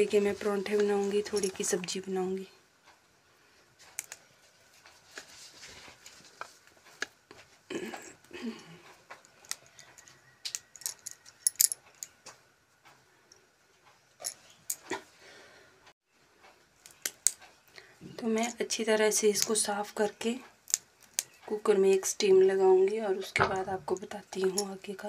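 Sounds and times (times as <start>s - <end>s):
rustling of flower buds: 3.4s - 10.2s.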